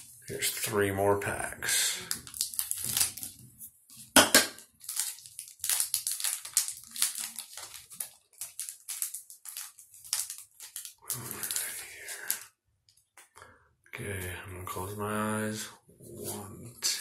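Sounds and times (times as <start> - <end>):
foil wrapper crackling: 2.0 - 3.4, 4.0 - 12.4
scissors cutting foil pack: 2.2 - 3.4, 4.8 - 11.8.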